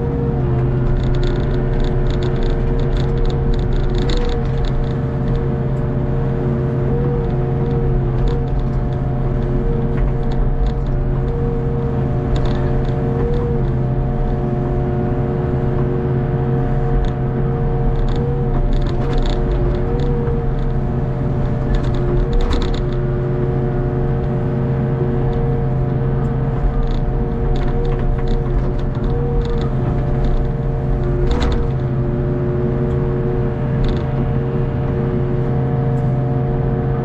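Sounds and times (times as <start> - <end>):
diesel engine under load: 0.0 - 37.0
hydraulic whine: 0.0 - 37.0.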